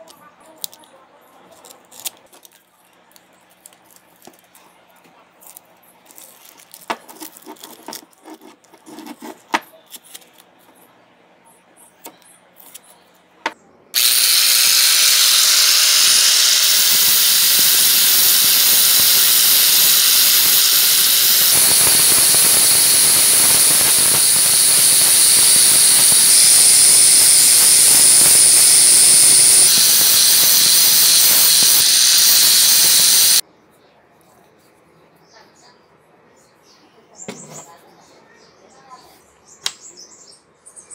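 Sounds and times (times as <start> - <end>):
tape and paper crinkling: 1.5 - 10.7
angle grinder grinding: 14.0 - 33.4.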